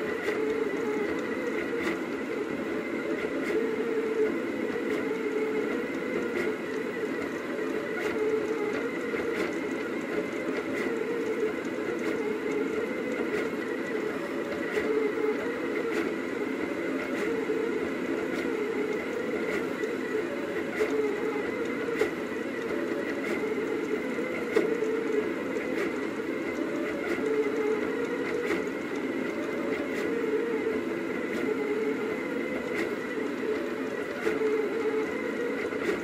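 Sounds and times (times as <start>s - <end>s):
stepper motors whirring: 0.0s - 36.0s.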